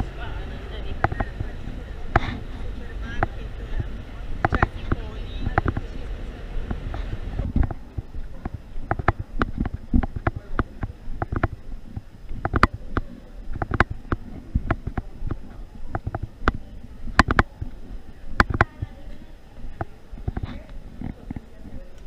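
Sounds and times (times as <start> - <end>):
camera jostling thumps and clicks: 4.4 - 5.9, 6.7 - 17.8, 19.8 - 21.4.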